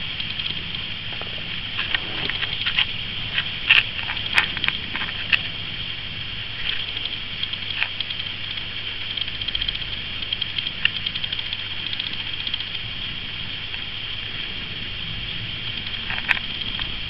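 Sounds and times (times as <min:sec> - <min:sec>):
steady hiss: 0:00.0 - 0:17.0
sharp clicks: 0:00.2 - 0:00.9, 0:06.6 - 0:12.9, 0:15.8 - 0:16.9.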